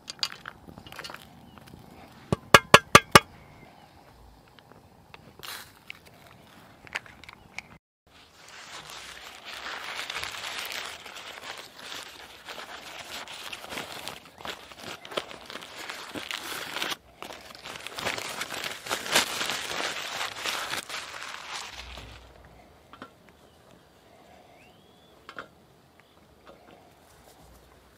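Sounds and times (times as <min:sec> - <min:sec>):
crinkly packaging rustling: 0:08.1 - 0:22.4.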